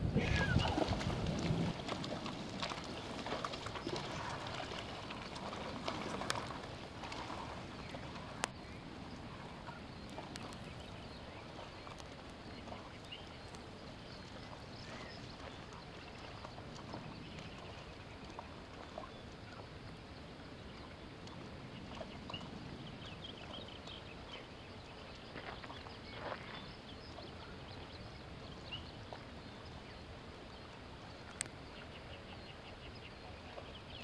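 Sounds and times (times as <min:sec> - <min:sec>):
water washing: 0:00.0 - 0:08.6
hooves splashing in river: 0:00.0 - 0:34.0.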